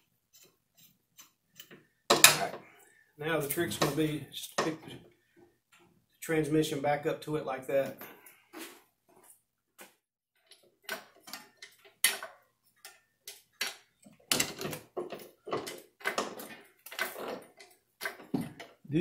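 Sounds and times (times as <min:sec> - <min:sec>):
light metal clicks and knocks: 0:10.4 - 0:18.8.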